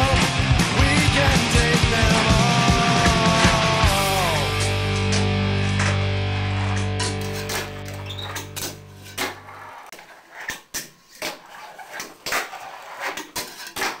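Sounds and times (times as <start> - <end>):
rock guitar chord: 0.3 - 7.0.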